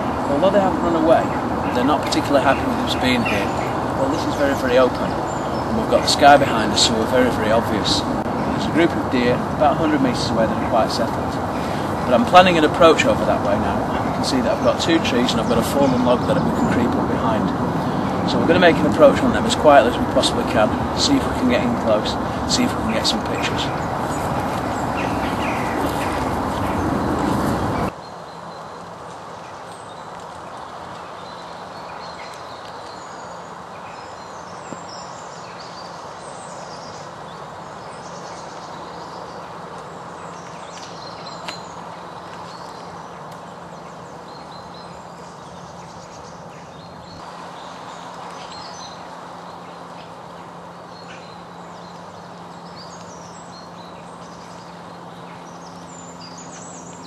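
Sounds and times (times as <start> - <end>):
higher hum: 0.0 - 27.9
birds chirping: 0.0 - 57.0
steady background hiss: 0.0 - 57.0.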